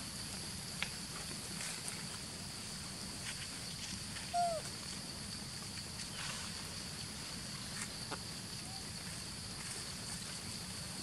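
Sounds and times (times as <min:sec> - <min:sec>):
high insect drone: 0:00.0 - 0:11.0
falling animal call: 0:04.3 - 0:04.7.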